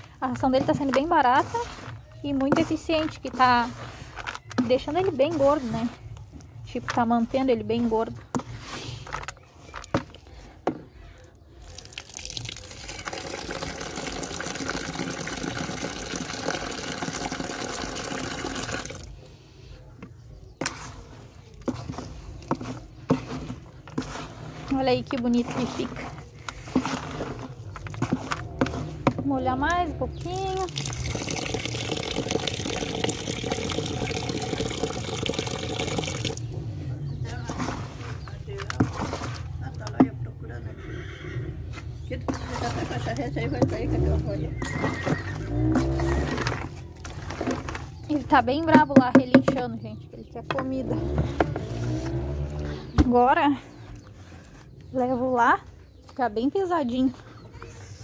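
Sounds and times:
spoon scraping in bucket: 0.0s - 10.6s, 20.3s - 39.8s, 41.7s - 49.6s, 50.7s - 53.0s
tap water pouring into metal bucket: 11.6s - 19.1s, 30.2s - 36.4s.

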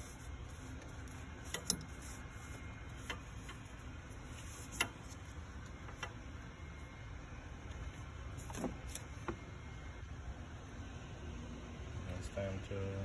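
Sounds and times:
low steady background hum: 0.0s - 13.0s.

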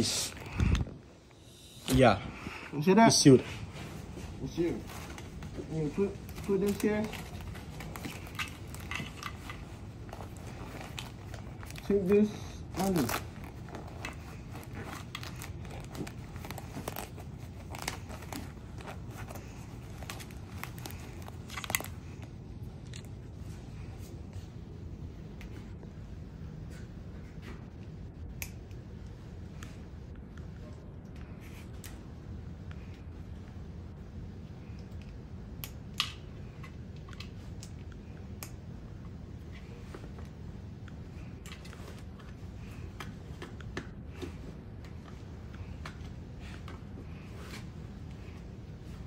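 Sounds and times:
protective suit rustling: 0.0s - 27.7s, 36.2s - 49.0s
low room hum: 0.0s - 49.0s
fabric handling: 1.9s - 23.4s.

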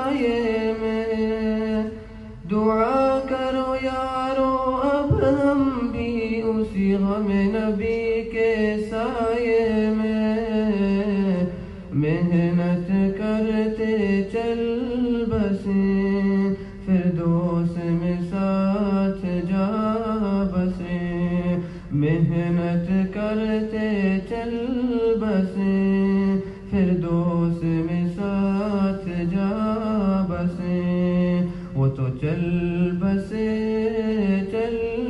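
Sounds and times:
man singing: 0.0s - 35.0s
singer breathing: 1.9s - 2.4s, 11.5s - 11.9s, 16.5s - 16.9s, 21.6s - 22.0s, 26.4s - 26.8s, 31.4s - 31.8s.

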